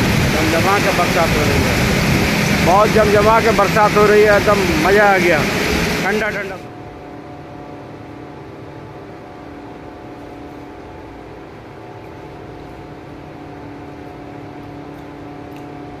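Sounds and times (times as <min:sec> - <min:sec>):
heavy rain falling: 0:00.0 - 0:06.7
mechanical hum: 0:00.0 - 0:16.0.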